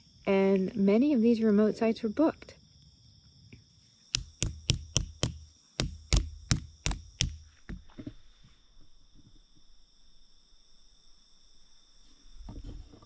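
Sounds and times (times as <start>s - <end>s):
crickets chirping: 0.0s - 13.0s
sharp knocks: 4.2s - 8.1s.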